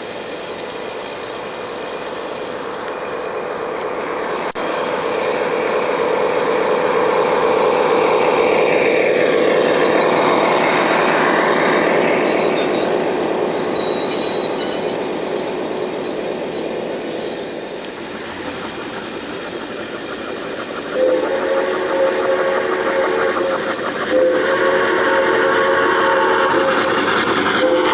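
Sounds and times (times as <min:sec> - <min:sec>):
model train rumbling past: 0:00.0 - 0:27.9
train whistle: 0:20.9 - 0:27.9.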